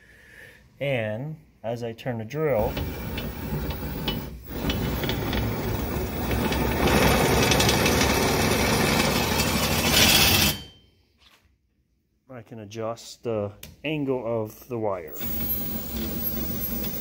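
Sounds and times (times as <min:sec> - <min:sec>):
power drill running: 0:02.5 - 0:10.6, 0:15.1 - 0:17.0.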